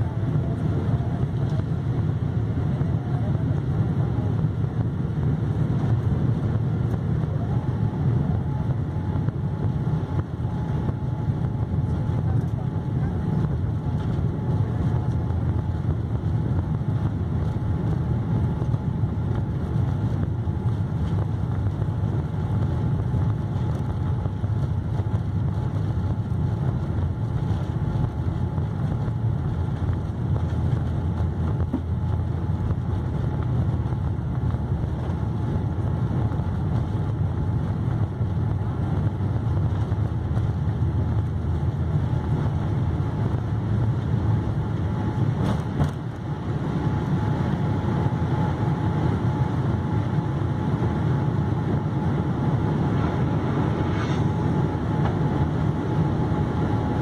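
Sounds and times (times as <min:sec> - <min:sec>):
aircraft cabin rumble: 0:00.0 - 0:57.0
faint steady whine: 0:00.0 - 0:57.0.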